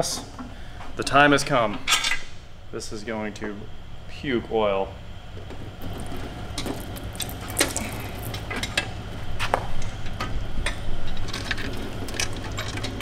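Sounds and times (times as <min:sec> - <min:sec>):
oil dripping into a drain pan: 0:05.8 - 0:08.5.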